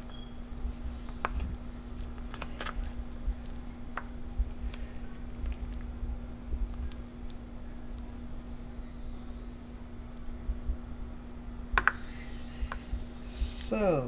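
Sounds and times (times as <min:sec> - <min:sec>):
low hum: 0:00.0 - 0:14.0
wet squishing of fruit: 0:01.3 - 0:08.1.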